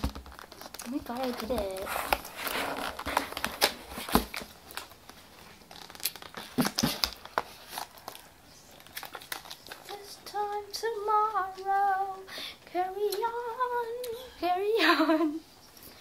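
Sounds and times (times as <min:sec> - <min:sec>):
plastic packaging crinkling: 0:00.0 - 0:11.6.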